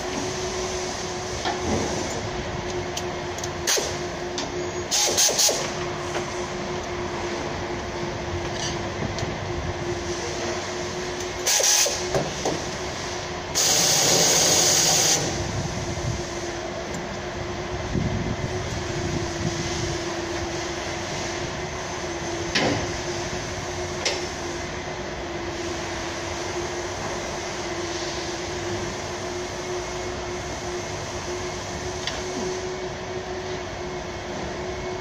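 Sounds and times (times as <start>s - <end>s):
workshop machinery hum: 0.0s - 35.0s
loud bursts of hiss: 3.6s - 4.0s, 4.9s - 5.8s, 10.0s - 16.6s.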